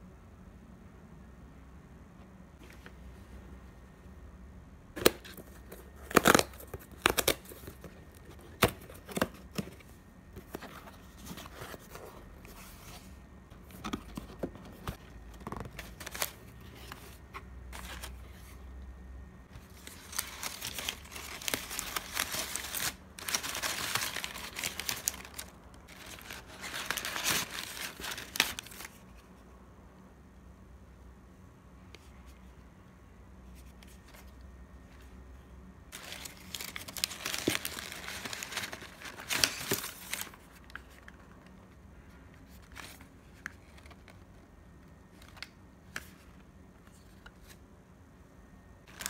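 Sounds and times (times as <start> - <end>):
tissue paper rustling: 19.5 - 29.0, 35.9 - 40.4
cardboard box handling: 19.8 - 28.8.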